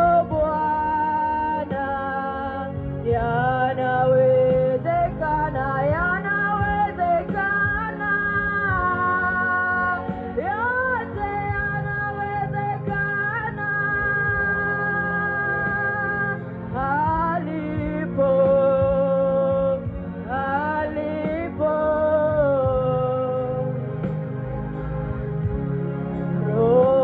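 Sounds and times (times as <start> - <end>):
woman singing gospel song: 0.0 - 23.7, 26.5 - 27.0
instrumental backing music: 0.0 - 27.0.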